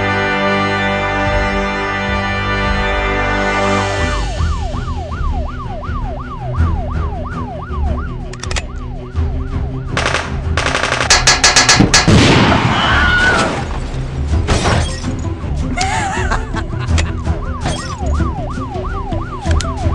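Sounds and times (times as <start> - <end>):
dramatic background music: 0.0 - 19.9
police siren yelping: 4.0 - 10.2, 16.8 - 19.9
rapid gunfire: 10.0 - 12.6.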